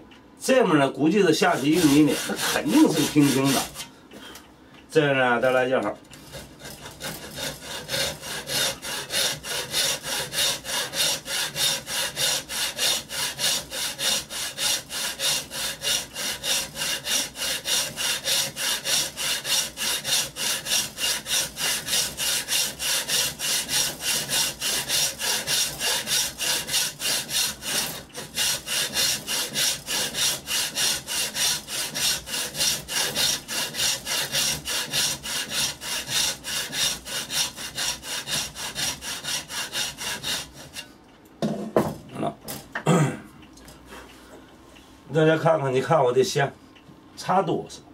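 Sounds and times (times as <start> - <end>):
hand saw cutting wood: 1.2 - 3.9, 6.2 - 40.9.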